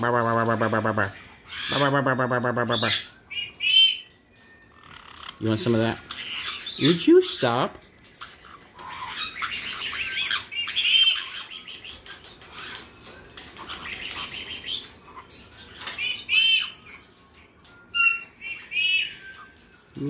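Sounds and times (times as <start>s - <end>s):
parrots chattering and squawking: 0.0s - 20.0s.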